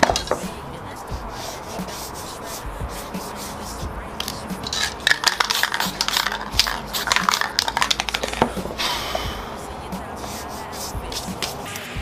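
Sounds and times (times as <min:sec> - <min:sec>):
gloved hand scraping phone back: 0:00.0 - 0:08.9.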